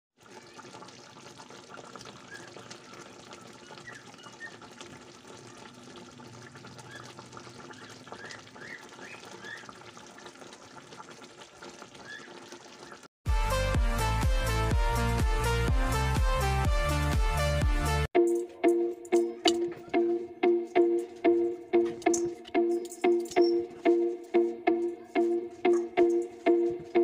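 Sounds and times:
sauce bubbling and crackling in pan: 0.2 - 13.1.

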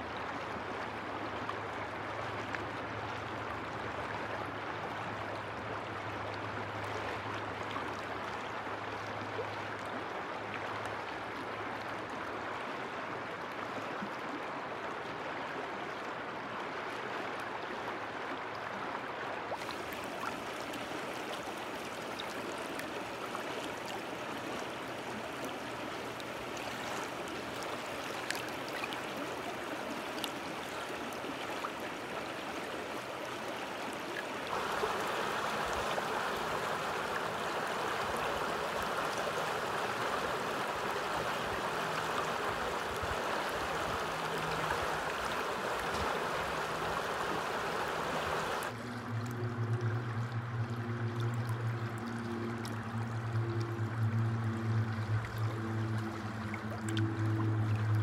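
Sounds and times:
water lapping over stones: 19.6 - 49.1.

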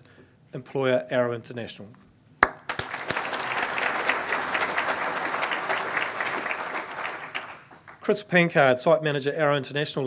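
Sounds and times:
audience applauding: 2.4 - 8.0.

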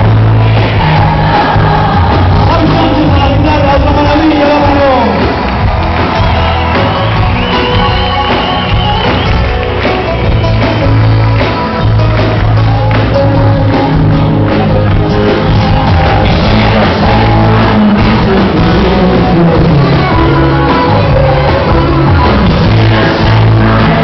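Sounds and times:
acoustic guitar: 0.0 - 24.0
live band playing: 0.0 - 24.0
crowd shouting along: 0.5 - 2.9, 5.4 - 9.2
man singing: 0.8 - 5.2, 15.2 - 24.0.

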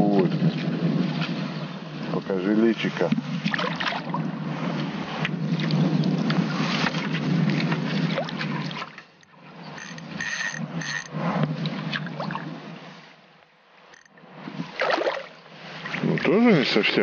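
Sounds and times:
fish splashing in water: 3.4 - 4.2, 14.0 - 16.0.

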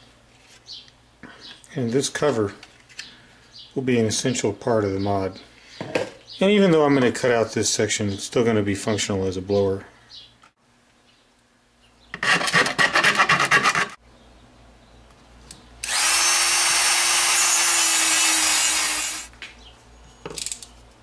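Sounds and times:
rasping strokes on plastic: 12.1 - 14.0
rotary tool cutting plastic: 15.8 - 19.3.

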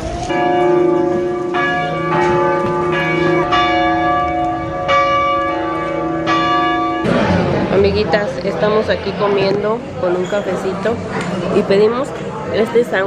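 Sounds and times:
church bells ringing: 0.0 - 8.8.

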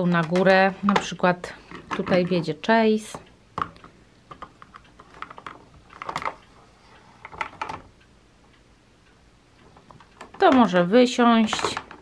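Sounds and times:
plastic toy clicking: 9.7 - 12.0.

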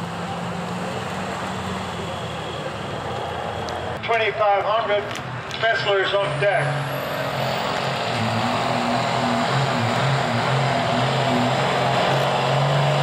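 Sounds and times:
diesel engine under heavy load: 0.0 - 13.0
rushing noise: 5.6 - 13.0.

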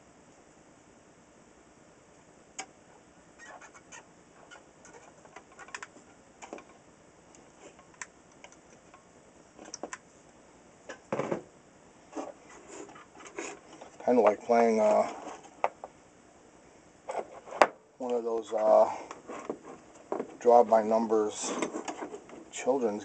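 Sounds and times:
scrape and rustle: 7.5 - 7.9, 12.0 - 15.6, 17.1 - 17.6, 18.5 - 23.0.

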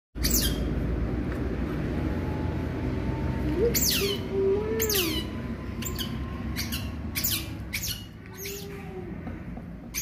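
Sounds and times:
otter pup squeaking: 0.2 - 0.7, 3.6 - 8.9.

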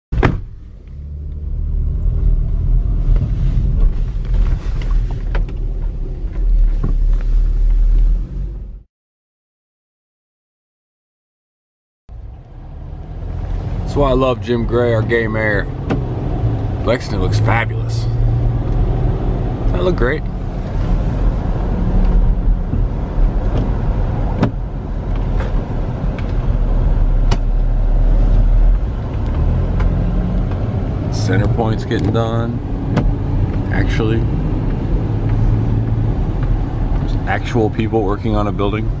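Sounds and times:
car road rumble: 0.1 - 8.9, 12.1 - 39.0
short sharp thump: 0.2 - 0.5.

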